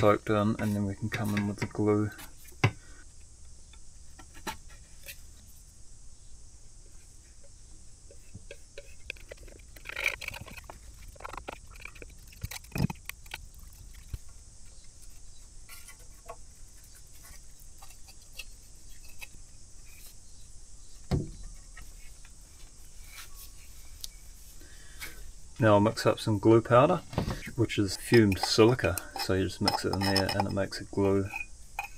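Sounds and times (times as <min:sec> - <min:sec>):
knife scraping wood: 0:00.4 - 0:01.6, 0:08.1 - 0:14.2, 0:15.0 - 0:20.2, 0:27.4 - 0:31.9
knocks on wooden bench: 0:21.1 - 0:21.4.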